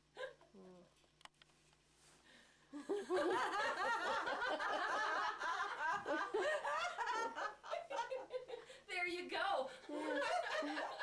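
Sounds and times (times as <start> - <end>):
people laughing: 2.7 - 8.7, 9.8 - 11.0.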